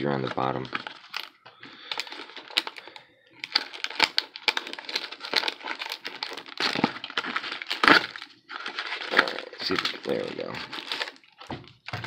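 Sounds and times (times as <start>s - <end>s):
cardboard box crinkling and clicking: 3.4s - 12.0s.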